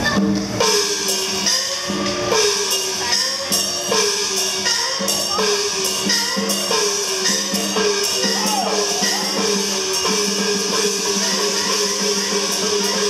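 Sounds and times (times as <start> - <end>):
cymbals crashing: 0.0 - 13.0
gongs with sliding pitch: 4.7 - 12.6.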